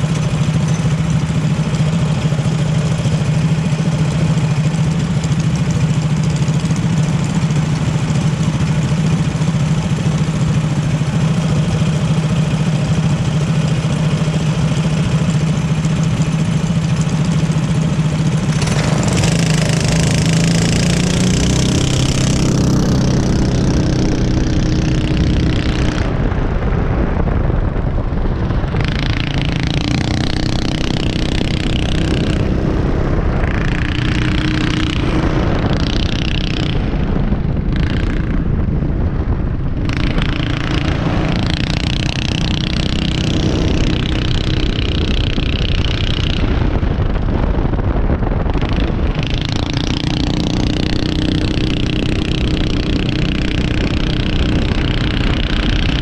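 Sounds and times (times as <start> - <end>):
racing car engines idling and revving: 0.0 - 56.0.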